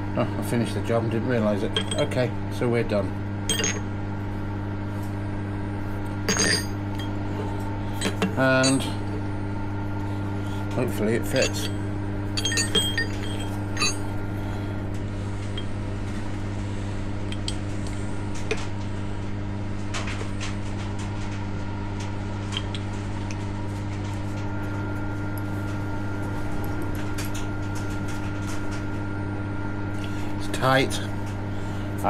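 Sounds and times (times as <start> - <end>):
electric machine hum: 0.0 - 32.0
metal parts clinking: 3.5 - 3.8, 6.3 - 7.1, 12.4 - 14.1.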